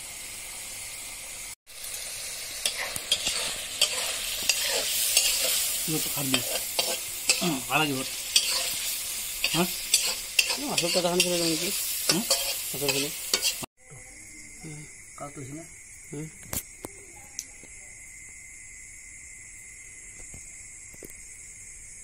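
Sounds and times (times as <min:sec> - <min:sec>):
meat sizzling in hot oil: 0:00.0 - 0:13.7
metal spatula scraping a pan: 0:02.6 - 0:13.7.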